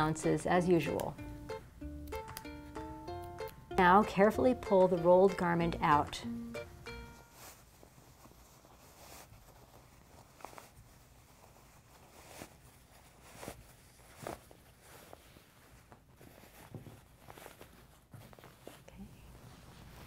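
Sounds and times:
fabric rustling: 0:07.0 - 0:20.0.

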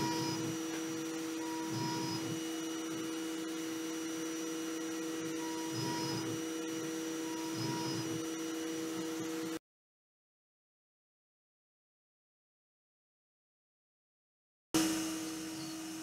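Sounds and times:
mill spindle whine: 0:00.0 - 0:09.6, 0:14.8 - 0:16.0.

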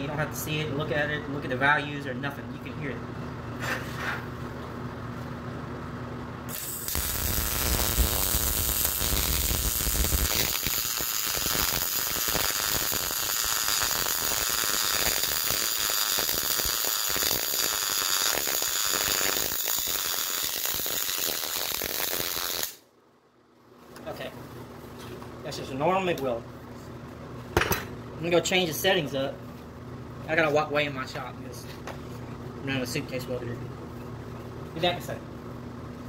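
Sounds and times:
welding arc crackling: 0:06.5 - 0:22.8.

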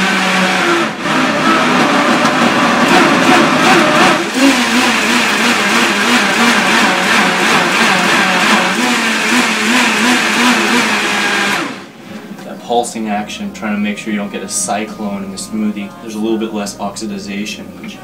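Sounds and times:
blender motor running: 0:00.0 - 0:11.9.

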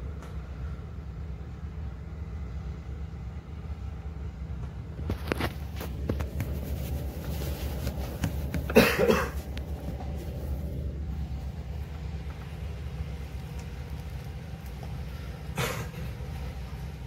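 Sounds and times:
ferry engines droning: 0:00.0 - 0:17.0.

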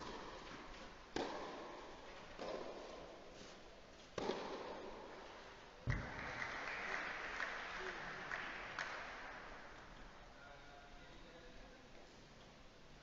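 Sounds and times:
tennis ball hits with rackets: 0:00.0 - 0:03.1, 0:04.1 - 0:05.0
applause: 0:05.9 - 0:09.7.

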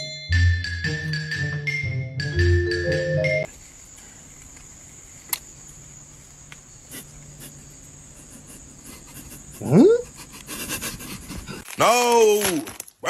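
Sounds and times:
faint hiss: 0:03.5 - 0:10.8.

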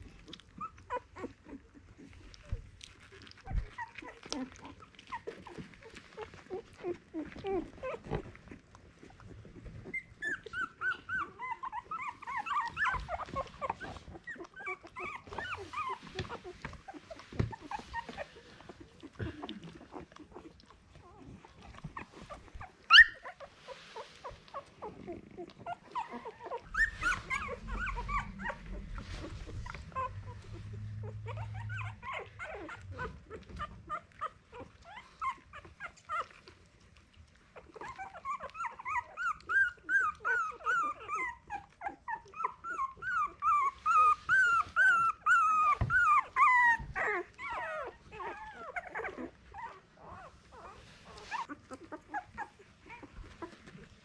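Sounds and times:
puppies whimpering and squealing: 0:00.0 - 0:54.0
puppy yelp: 0:09.8 - 0:36.6, 0:37.6 - 0:53.8.

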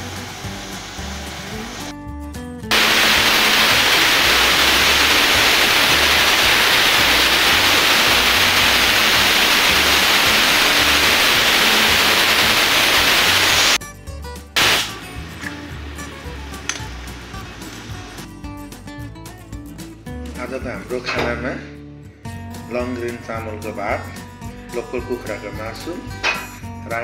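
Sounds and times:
hot oil sizzling: 0:00.0 - 0:01.9, 0:02.7 - 0:13.8, 0:14.6 - 0:18.3
quiet background music with beat: 0:13.8 - 0:27.0.

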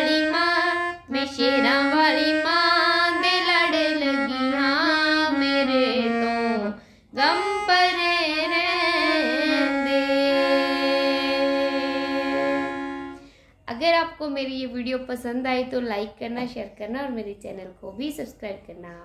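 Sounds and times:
woman singing devotional song: 0:00.0 - 0:13.9.

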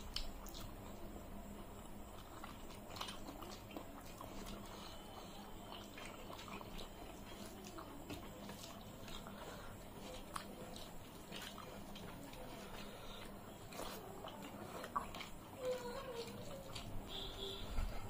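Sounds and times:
fingers mixing wet food: 0:00.0 - 0:18.0
low steady hum: 0:00.0 - 0:18.0
person chewing: 0:00.0 - 0:18.0.

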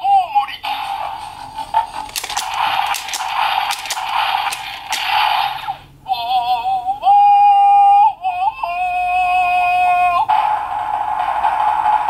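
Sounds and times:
toy clicks: 0:02.0 - 0:05.1.

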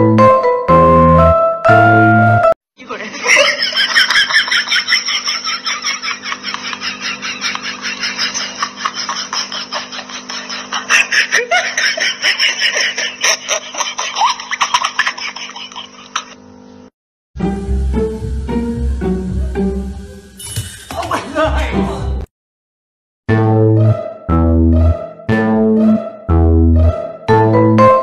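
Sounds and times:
person laughing hard: 0:03.2 - 0:16.4.

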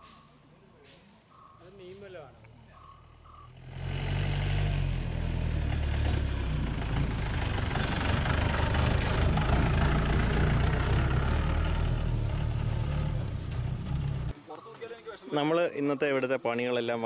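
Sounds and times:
jeep engine driving past: 0:03.5 - 0:14.4.

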